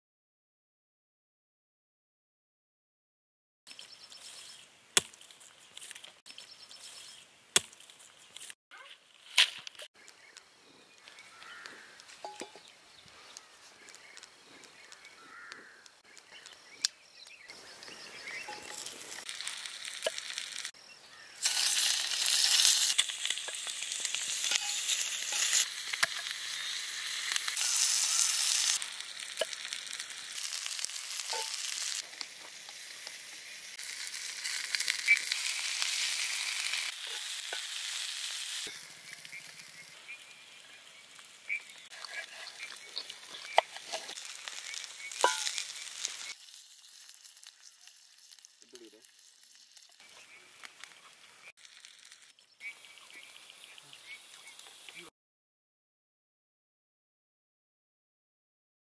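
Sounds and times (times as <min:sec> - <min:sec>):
fire crackling pops: 0:09.2 - 0:20.8, 0:21.4 - 0:53.5
food sizzling in skillet: 0:17.5 - 0:55.0.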